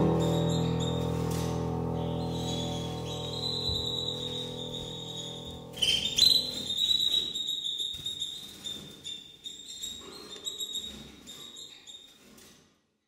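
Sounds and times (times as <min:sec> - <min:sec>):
solo jazz piano: 0:00.0 - 0:06.7
canary peeping and chirping: 0:00.0 - 0:12.1.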